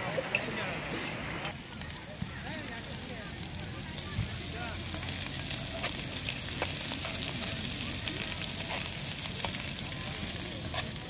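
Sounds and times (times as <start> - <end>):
food sizzling in a pan: 1.4 - 11.0.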